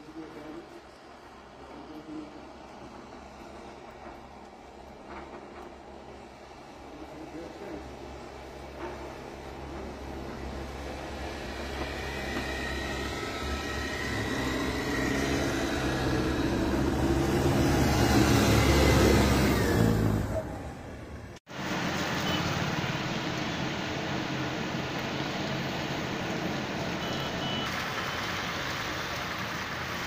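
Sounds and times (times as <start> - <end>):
light traffic on wet street: 0.0 - 30.0
snowcat engine driving past: 6.2 - 20.6
rain hiss: 21.5 - 30.0.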